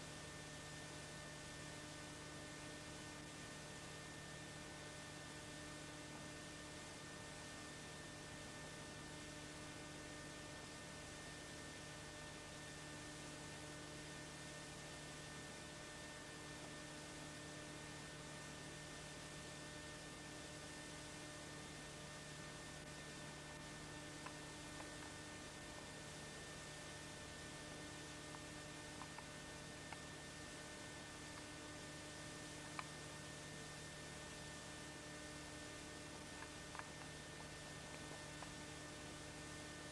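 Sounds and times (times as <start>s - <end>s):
electrical hum: 0.0s - 39.9s
tape hiss: 19.9s - 39.9s.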